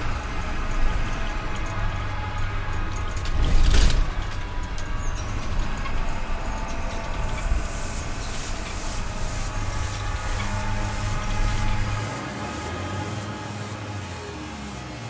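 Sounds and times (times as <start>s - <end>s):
rattling in bus cabin: 0.0s - 12.2s
bus engine and road rumble: 0.0s - 15.0s.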